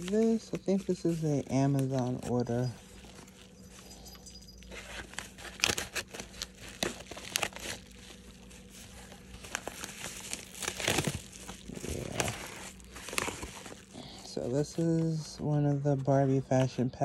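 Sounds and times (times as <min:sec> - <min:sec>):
stiff paper crinkling: 0:00.0 - 0:17.0
scissors snipping paper: 0:04.9 - 0:07.8.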